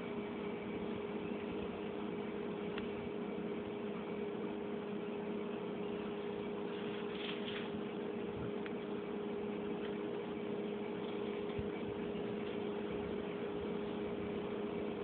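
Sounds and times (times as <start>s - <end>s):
steady hum and hiss: 0.0s - 15.0s
cat pawing scuffle: 6.7s - 7.8s.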